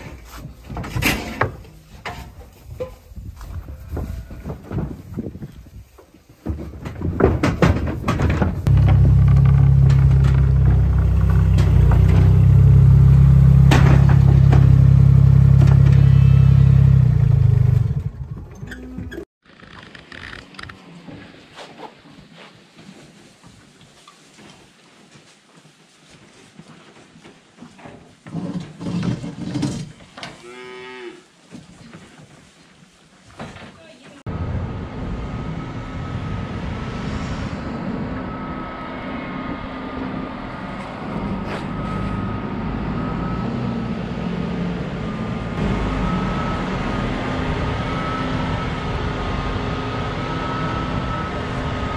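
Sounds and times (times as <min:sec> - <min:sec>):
steady low machine noise: 0:08.7 - 0:15.2
loud engine running: 0:08.7 - 0:18.5, 0:34.3 - 0:51.9.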